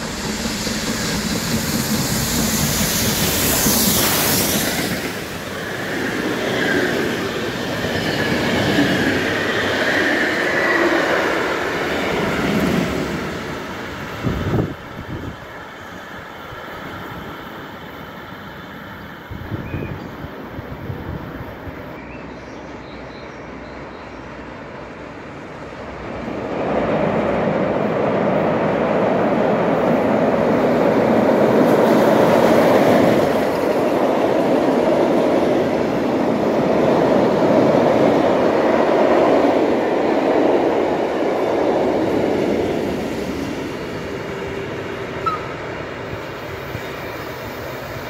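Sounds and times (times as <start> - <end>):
train rumbling over a bridge: 0.0 - 48.0.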